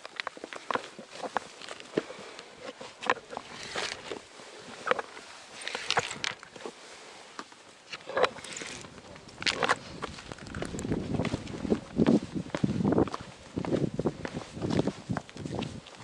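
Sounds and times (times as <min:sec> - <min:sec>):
boots stepping on rock: 0:07.4 - 0:16.0.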